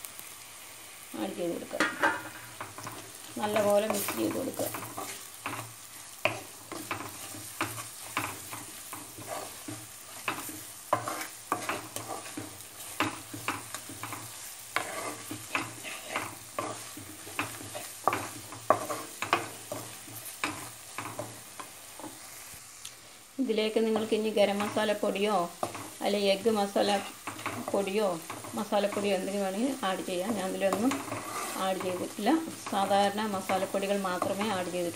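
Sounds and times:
light sizzle: 0:00.0 - 0:34.9
spatula scraping and tapping pan: 0:01.8 - 0:22.2, 0:23.9 - 0:34.9.

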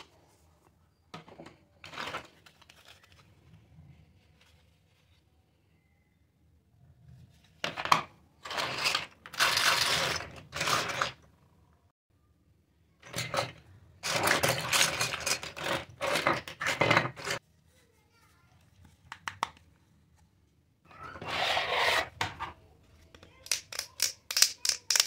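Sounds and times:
plastic toy pieces clattering: 0:08.5 - 0:11.2, 0:13.0 - 0:17.4, 0:23.4 - 0:25.0.

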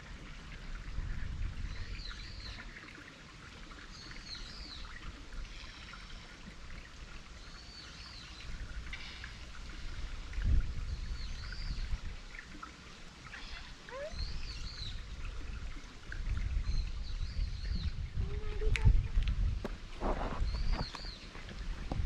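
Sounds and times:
stream trickling: 0:00.0 - 0:22.0.

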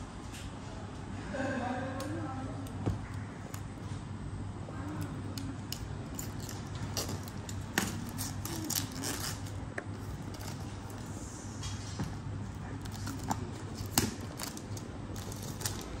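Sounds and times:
plastic film crackling: 0:05.0 - 0:11.1, 0:12.5 - 0:16.0
utility knife cutting shrink wrap: 0:05.4 - 0:11.1, 0:12.8 - 0:16.0.

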